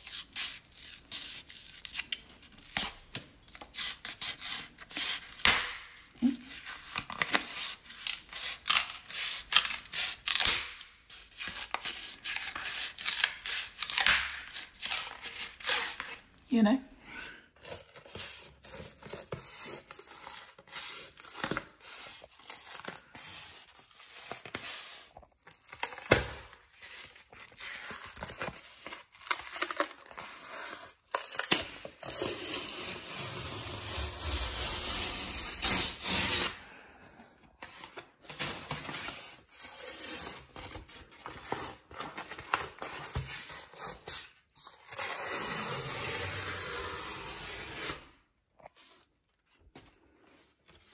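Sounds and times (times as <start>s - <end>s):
wallpaper tearing: 26.8s - 36.6s, 39.1s - 48.2s.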